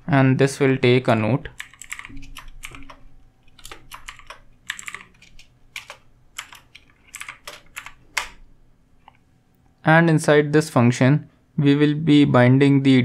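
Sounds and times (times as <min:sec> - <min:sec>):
keyboard typing: 0:01.5 - 0:08.4.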